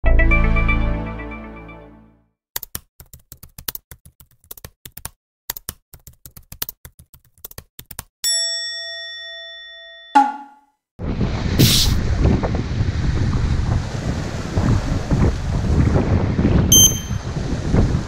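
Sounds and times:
bell ding: 8.2 - 10.7, 16.7 - 17.2.

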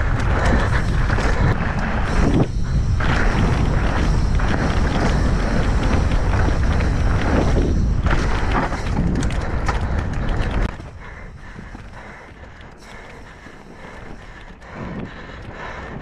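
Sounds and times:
bike tyres clattering over rock: 0.0 - 13.3
wind buffeting microphone: 0.0 - 16.0.

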